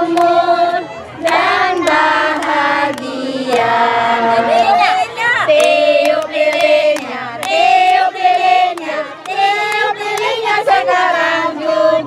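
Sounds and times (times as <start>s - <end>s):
hands clapping: 0.0s - 4.0s, 5.5s - 11.0s
children and women singing: 0.0s - 12.0s.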